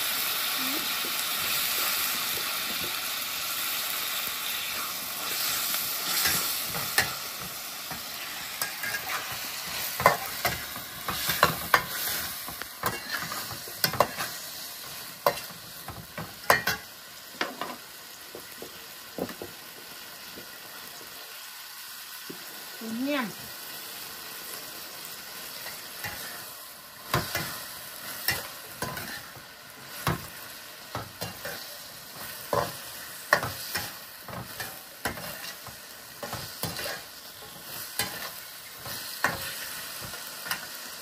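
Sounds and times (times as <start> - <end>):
vegetables sizzling in a wok: 0.0 - 41.0
metal spatula scraping a wok: 5.2 - 7.2, 8.3 - 15.5, 25.6 - 26.5, 27.1 - 30.3, 31.2 - 39.8.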